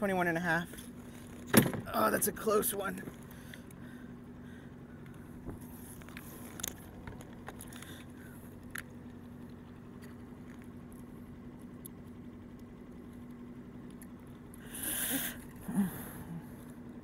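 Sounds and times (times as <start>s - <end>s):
steady low hum: 0.0s - 17.0s
small clicks and light rattles: 5.9s - 14.6s.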